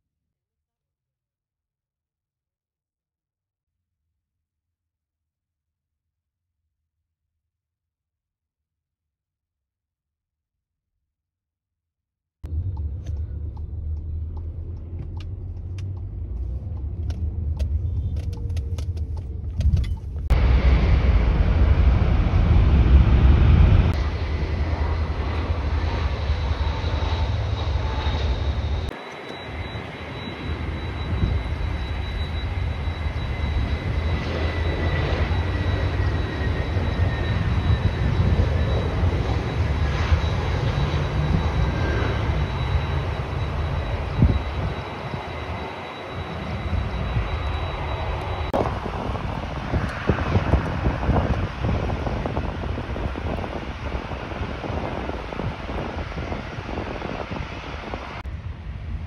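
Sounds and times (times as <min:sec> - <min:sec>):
high engine whine: 0:12.4 - 0:59.0
jet airliner engines roaring: 0:12.5 - 0:59.0.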